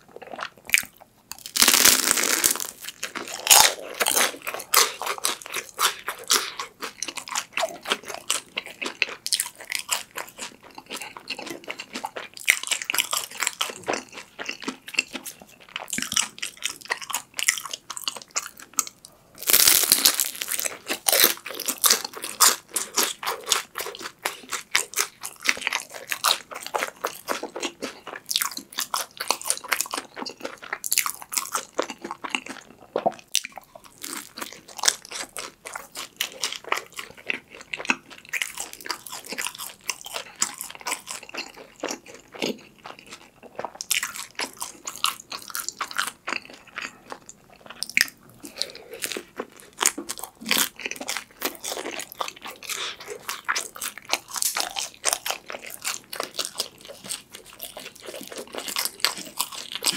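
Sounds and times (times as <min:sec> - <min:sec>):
wet chewing: 0:00.1 - 0:59.9
crunching crisp crust: 0:00.2 - 0:14.2, 0:19.4 - 0:32.5.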